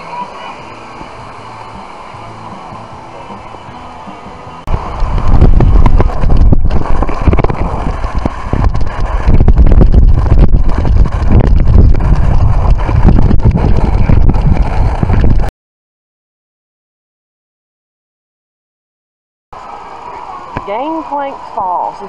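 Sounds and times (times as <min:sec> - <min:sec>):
wind buffeting microphone: 0:04.7 - 0:15.5.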